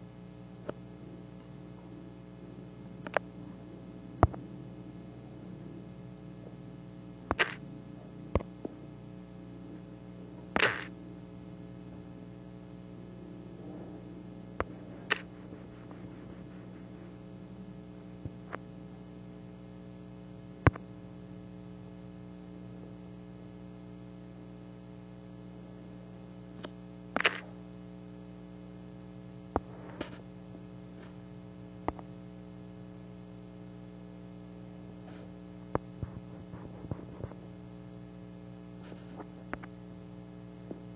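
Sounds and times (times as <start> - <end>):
buzzy electrical hum: 0.0 - 40.9
sharp clicks: 3.0 - 3.2, 7.3 - 7.6, 10.6 - 10.9, 26.6 - 27.5.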